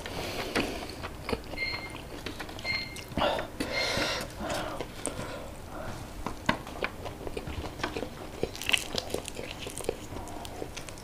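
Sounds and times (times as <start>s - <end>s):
chewing and crunching: 0.3s - 3.2s, 6.4s - 11.0s
crisp fish crackling: 8.4s - 11.0s.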